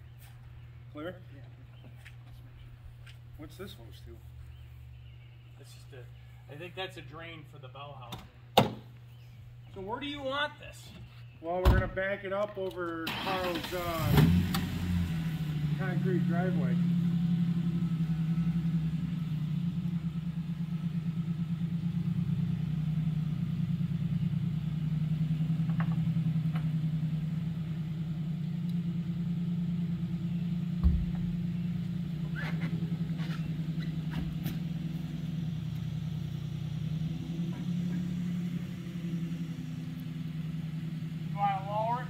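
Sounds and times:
truck engine idling: 14.6 - 42.0
dull thump: 30.8 - 31.5.

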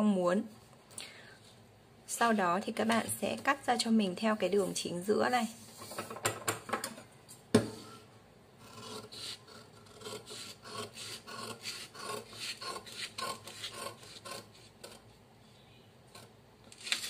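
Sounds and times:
scissors cutting paper: 8.7 - 15.0.

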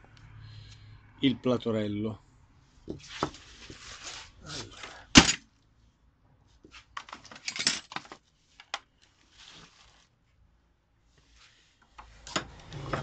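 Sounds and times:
soft rustle: 2.7 - 4.8, 8.2 - 10.4, 11.0 - 12.0.

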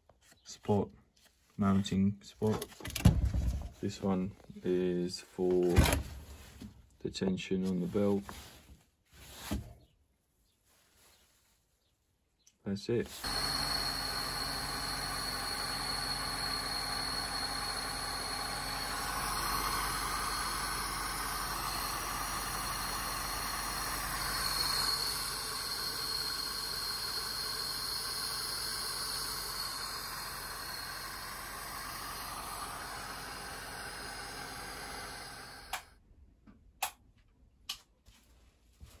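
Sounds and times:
car engine running: 13.2 - 35.9.

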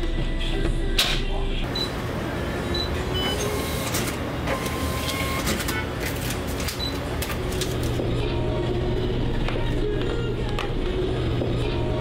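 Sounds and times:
receipt printer printing: 1.7 - 8.0.

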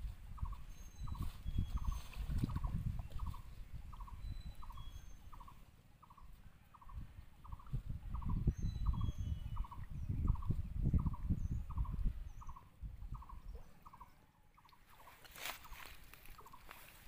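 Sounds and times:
water sloshing around wading person: 0.1 - 3.8, 13.6 - 17.0.

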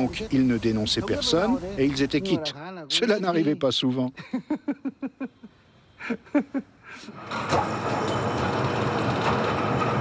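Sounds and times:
man laughing: 4.1 - 7.2
machinery noise with whine: 7.2 - 10.0.

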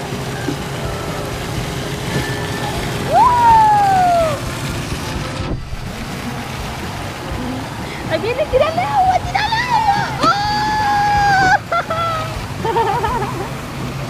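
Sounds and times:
boat motor running: 0.0 - 14.0
water churning: 0.0 - 14.0
loud high cry: 2.6 - 4.4, 9.4 - 12.4.

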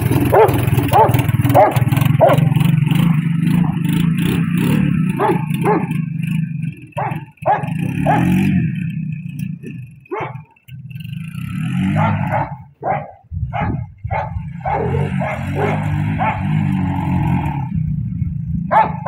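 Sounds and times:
atv engine revving: 0.0 - 19.0
dog barking: 0.3 - 2.6, 5.2 - 6.0, 7.0 - 8.4, 10.1 - 10.5, 12.0 - 16.6, 18.7 - 19.0.

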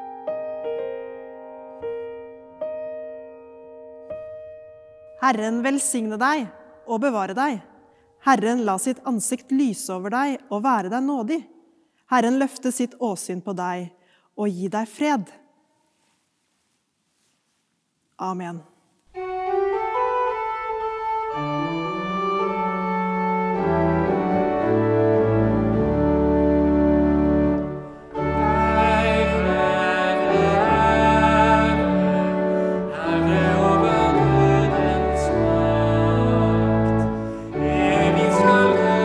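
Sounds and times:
pipe organ playing a hymn: 19.2 - 39.0
woman and man singing: 28.2 - 39.0.

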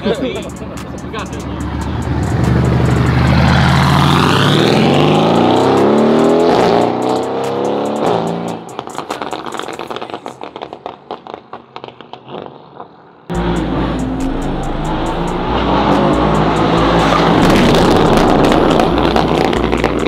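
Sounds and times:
car engine accelerating hard: 1.6 - 8.7, 13.3 - 20.0
exhaust pops and crackles: 8.7 - 12.9, 17.0 - 20.0.

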